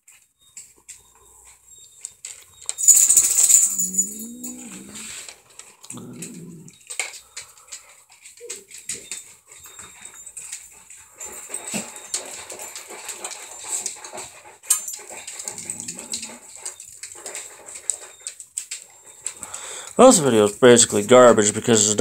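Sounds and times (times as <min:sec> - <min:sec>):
cats crunching dry food: 0:00.1 - 0:22.0
dog whining: 0:01.1 - 0:07.1, 0:15.1 - 0:18.3.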